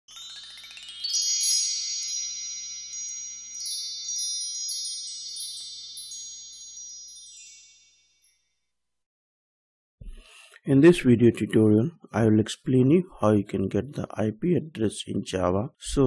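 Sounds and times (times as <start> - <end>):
sustained shimmering ring: 0.1 - 8.6
bright high chimes tinkling: 0.1 - 8.7.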